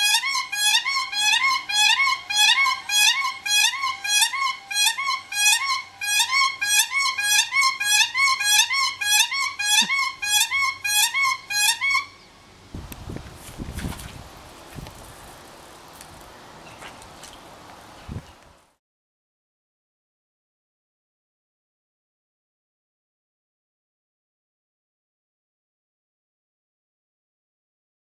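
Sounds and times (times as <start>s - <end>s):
cranes calling: 0.0s - 12.4s.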